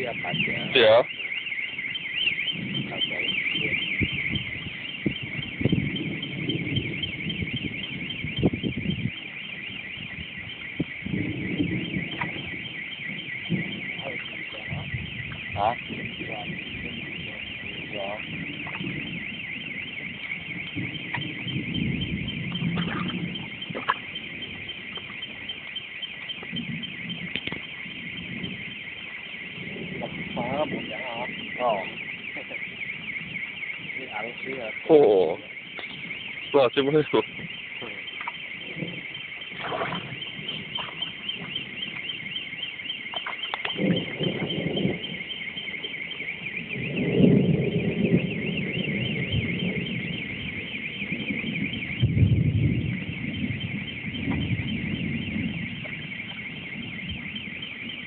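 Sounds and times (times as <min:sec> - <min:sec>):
high-pitched insect chorus: 0:37.9 - 0:57.8.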